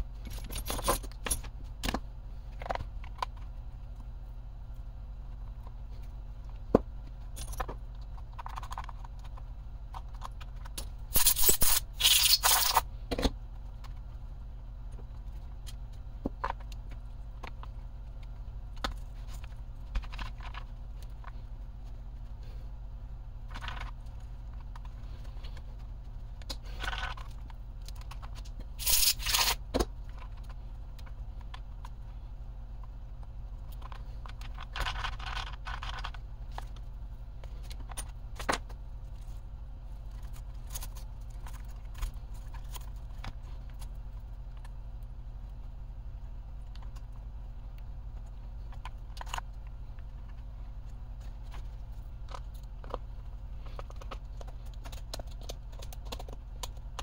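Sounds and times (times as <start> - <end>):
steady low hum: 0.0 - 57.0
plastic toy car handling noises: 23.4 - 32.1, 32.8 - 44.8, 47.8 - 57.0.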